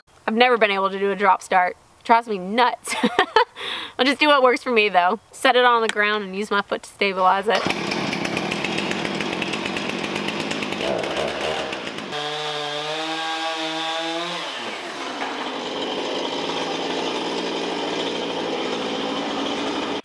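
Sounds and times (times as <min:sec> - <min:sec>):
chainsaw revving and idling: 0:07.6 - 0:20.0.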